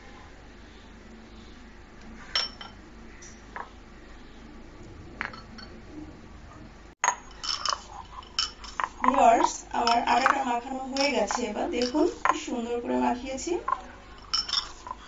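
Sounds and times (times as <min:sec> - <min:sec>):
ceramic bowl and glass clinking: 0:02.3 - 0:03.4, 0:07.0 - 0:12.5, 0:13.7 - 0:15.0.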